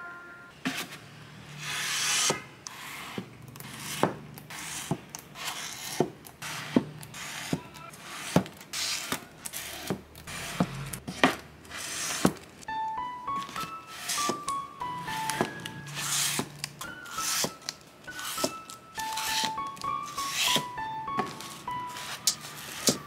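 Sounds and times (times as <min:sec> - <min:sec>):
book covers scraping: 0:00.6 - 0:12.6, 0:13.4 - 0:14.5, 0:15.1 - 0:23.0
soft lo-fi music: 0:12.7 - 0:23.0.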